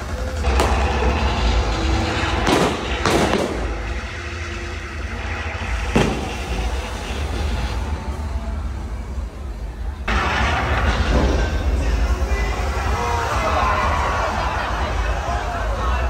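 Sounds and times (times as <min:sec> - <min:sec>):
heavy low rumble: 0:00.0 - 0:16.0
pyrotechnic bangs: 0:00.4 - 0:08.2.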